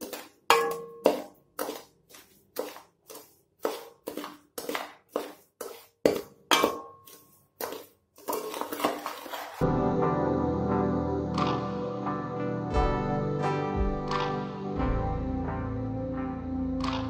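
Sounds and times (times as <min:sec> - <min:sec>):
spoon stirring sugar in metal pan: 0:00.0 - 0:09.6.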